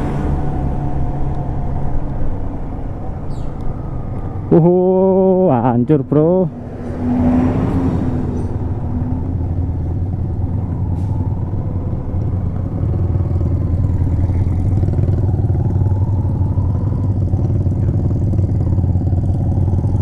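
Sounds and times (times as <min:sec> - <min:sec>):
road noise: 0:00.0 - 0:20.0
motorcycle engine running: 0:11.8 - 0:20.0.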